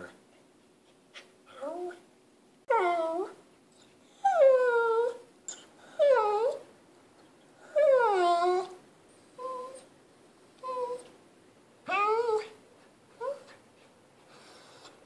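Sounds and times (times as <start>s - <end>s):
dog whining: 2.7s - 6.7s, 7.6s - 9.9s, 10.6s - 11.2s, 11.8s - 13.6s.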